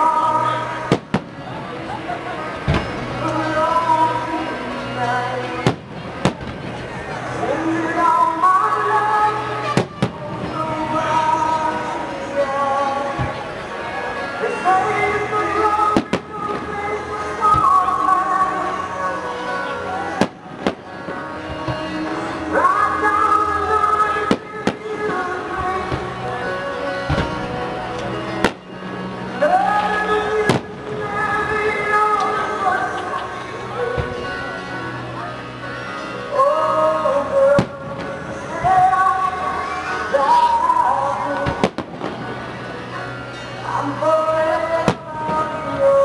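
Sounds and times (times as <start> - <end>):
music: 0.0 - 46.0
fireworks bursting with bangs: 0.9 - 1.4, 5.6 - 6.7, 20.2 - 21.2, 30.5 - 30.7, 41.4 - 42.2.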